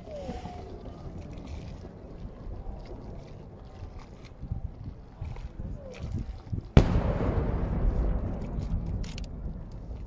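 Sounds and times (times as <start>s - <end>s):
firework shell boom and rumble: 6.7s - 10.0s.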